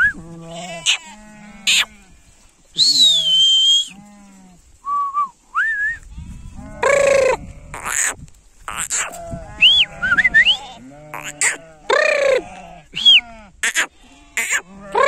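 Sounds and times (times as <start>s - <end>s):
sheep and goats bleating: 0.0s - 2.5s, 3.7s - 4.7s, 6.0s - 15.0s
shrill whistling: 2.8s - 4.0s, 4.8s - 6.0s, 9.6s - 10.6s.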